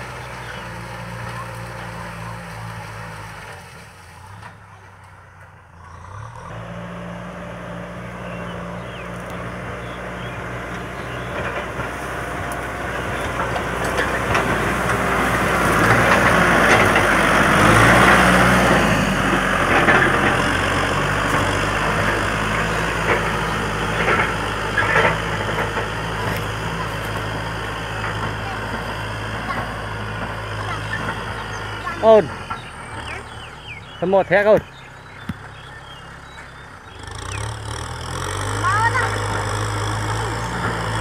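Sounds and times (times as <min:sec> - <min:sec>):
tractor diesel engine running: 0:00.0 - 0:41.0.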